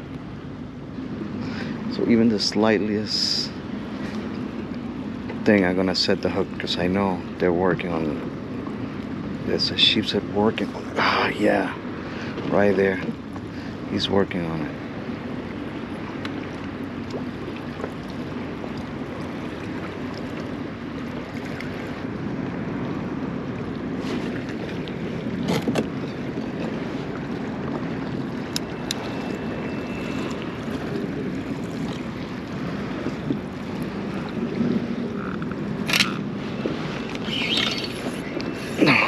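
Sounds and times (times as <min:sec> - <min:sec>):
water lapping against a hull: 0:00.0 - 0:39.0
wind on microphone: 0:00.0 - 0:39.0.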